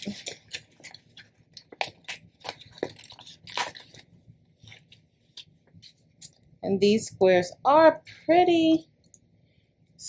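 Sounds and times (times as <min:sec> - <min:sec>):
paper crinkling and rustling: 0:00.0 - 0:06.0.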